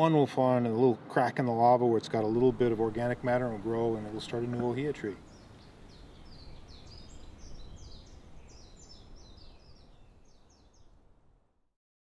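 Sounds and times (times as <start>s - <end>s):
bird chirping: 2.2s - 11.1s
steady low rumble: 2.3s - 10.1s.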